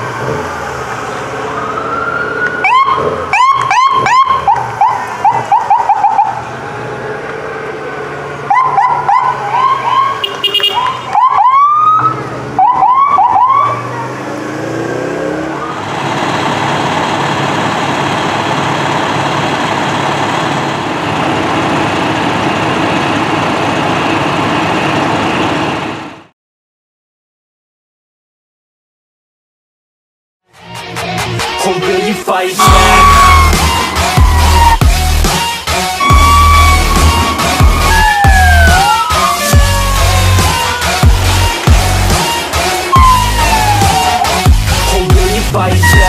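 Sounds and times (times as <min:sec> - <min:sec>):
sirens whooping: 0:00.0 - 0:23.4, 0:32.6 - 0:46.0
steady loud noise: 0:32.6 - 0:44.9.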